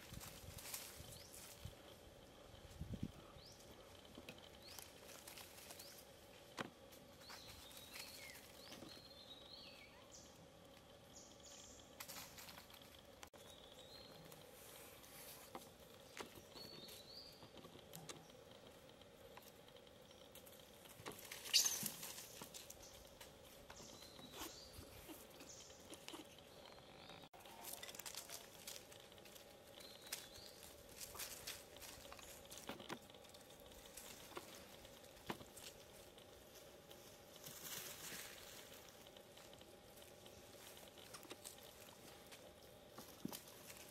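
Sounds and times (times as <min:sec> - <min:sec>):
light rustling and crackling: 0:00.0 - 0:09.0, 0:27.5 - 0:43.9
faint steady hum: 0:00.0 - 0:43.9.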